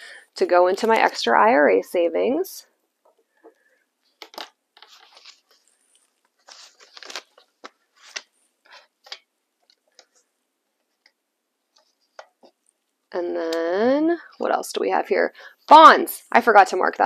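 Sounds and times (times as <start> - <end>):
paper money and plastic rustling: 4.1 - 10.3.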